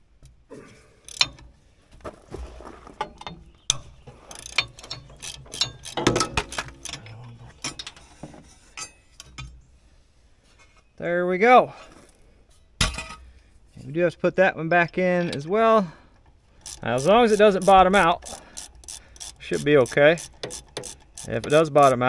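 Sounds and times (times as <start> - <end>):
ratchet wrench clicking: 1.1 - 1.4, 4.3 - 7.0, 16.6 - 22.0
metal clinks of tools: 3.0 - 9.4.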